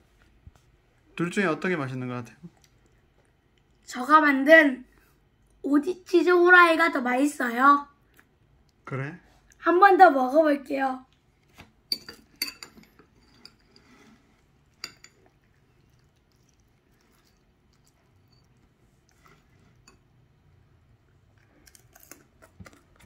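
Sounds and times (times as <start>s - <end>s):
fork clinking on ceramic bowl: 11.9s - 13.8s.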